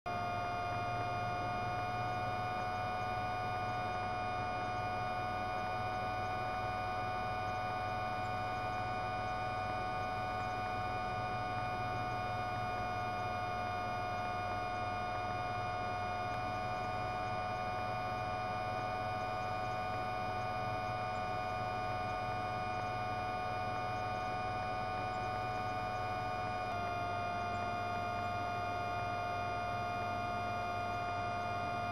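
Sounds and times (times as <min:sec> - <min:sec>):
mid-pitched whine: 0:00.1 - 0:31.9.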